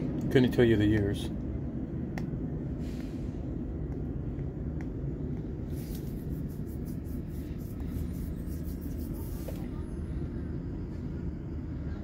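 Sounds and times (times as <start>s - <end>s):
diesel bus engine rumble: 0.0s - 12.0s.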